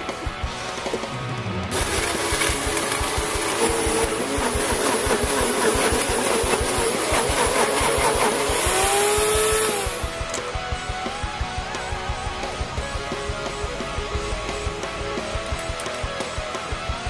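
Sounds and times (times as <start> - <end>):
blades crushing ice: 1.7 - 10.1
blender motor whirring: 1.7 - 10.4.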